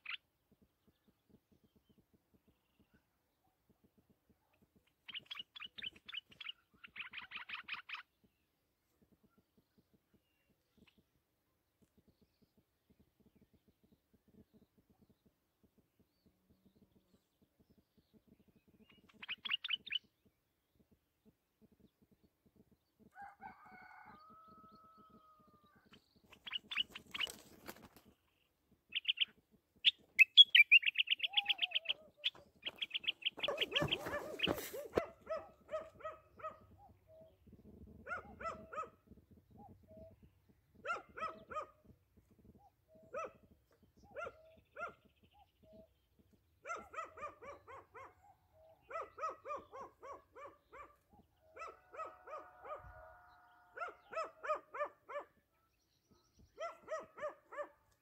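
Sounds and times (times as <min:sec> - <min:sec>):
nightingale singing: 0:19.0 - 0:20.1, 0:28.9 - 0:34.9.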